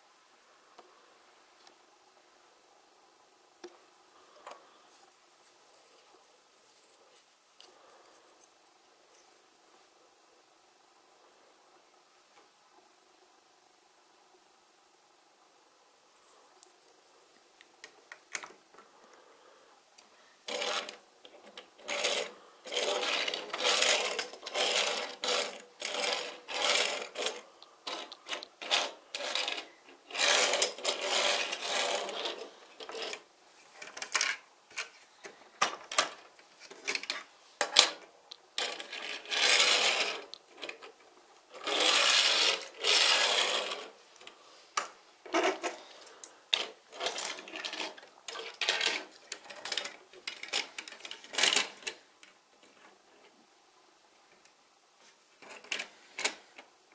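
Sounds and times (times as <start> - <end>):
toy car wheels rolling on table: 20.4 - 53.3, 55.4 - 56.7.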